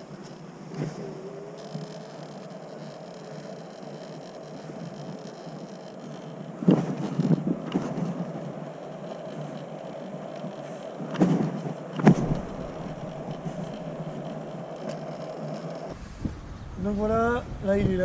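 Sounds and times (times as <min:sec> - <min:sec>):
scooter wheels rolling hum: 0:00.0 - 0:16.0
sharp knocks and bumps: 0:11.1 - 0:14.2.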